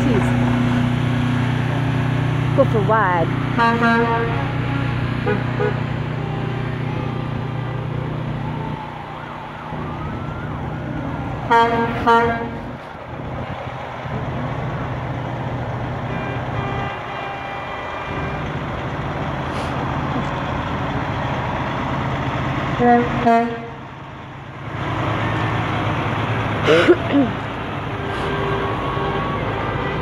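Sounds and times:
truck diesel engine running: 0.0 - 30.0
truck horn blasts: 3.5 - 7.8, 11.5 - 12.8, 16.0 - 18.7, 22.8 - 23.9, 26.6 - 30.0.

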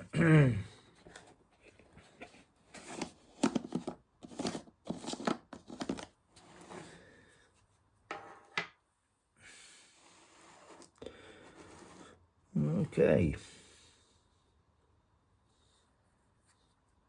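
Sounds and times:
plastic lid threads scraping: 1.1 - 7.0.

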